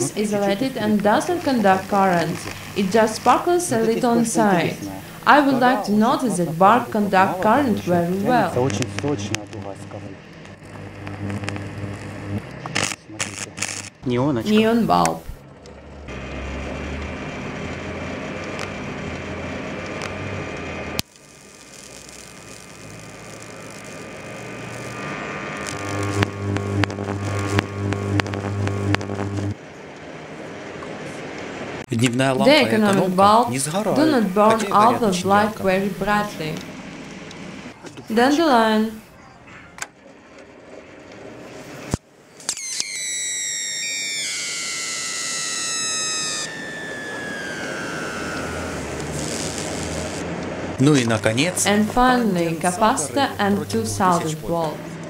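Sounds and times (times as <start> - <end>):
electric arc buzzing: 0.0 - 29.7, 31.8 - 39.1, 41.3 - 55.0
high whistling squeal: 42.4 - 50.2.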